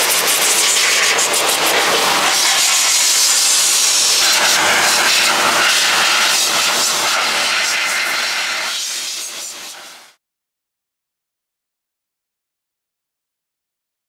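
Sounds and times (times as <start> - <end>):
air blower blasting: 0.0 - 10.2.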